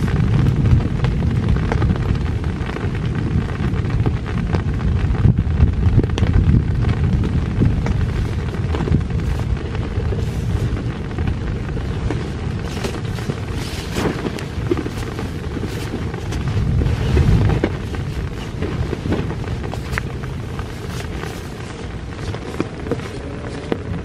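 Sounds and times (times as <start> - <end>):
deep steady rumble: 0.0 - 24.0
heavy rain on a tent: 0.0 - 24.0
sharp taps and rustles: 12.0 - 24.0.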